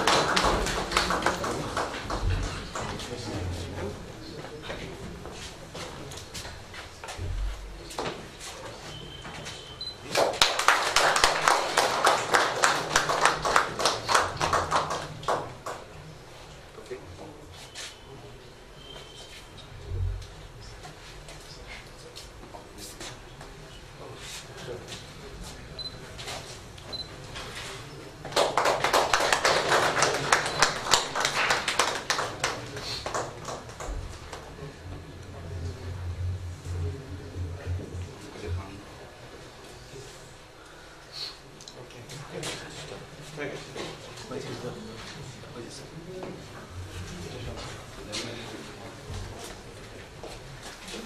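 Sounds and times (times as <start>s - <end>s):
people clapping: 0.0s - 3.3s, 10.0s - 16.0s, 28.2s - 34.6s.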